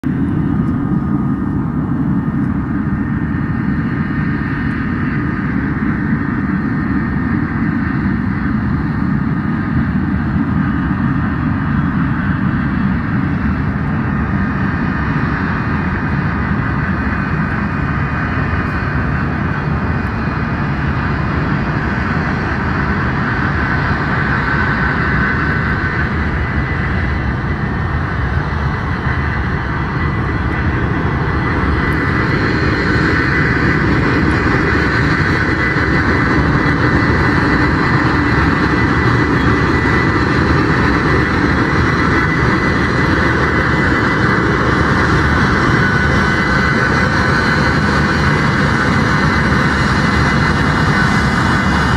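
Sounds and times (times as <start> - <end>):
jet engines rumbling with whine: 0.0 - 51.9.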